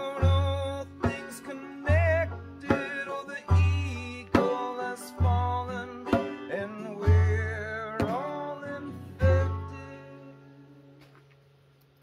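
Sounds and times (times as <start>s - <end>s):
deep barrel drum beats: 0.0s - 9.8s
banjo: 0.0s - 11.2s
acoustic guitar: 0.0s - 12.0s
drum stick strikes: 6.0s - 6.6s.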